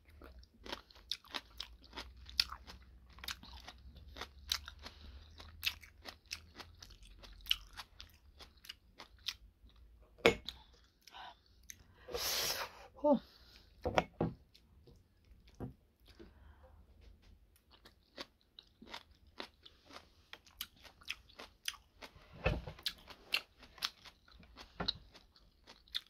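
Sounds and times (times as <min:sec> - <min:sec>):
chewing crunchy cabbage: 0:00.0 - 0:09.9, 0:17.6 - 0:26.0.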